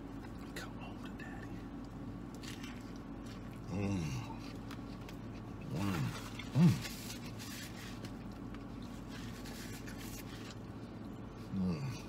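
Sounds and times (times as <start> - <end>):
soft chewing: 0.0 - 12.0.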